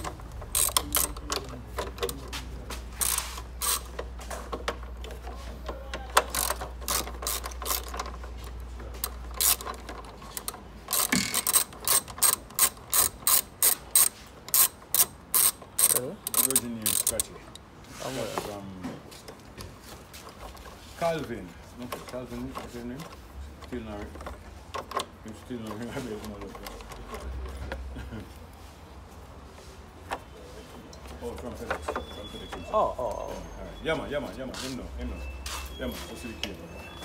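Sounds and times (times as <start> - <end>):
ratchet wrench clicking: 0.0 - 1.5, 2.9 - 4.1, 6.2 - 8.2, 9.0 - 17.6.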